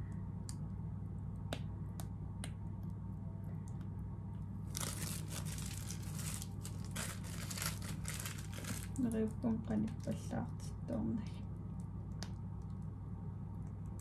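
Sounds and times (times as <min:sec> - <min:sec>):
plastic piping bag crinkling: 0:04.6 - 0:10.3.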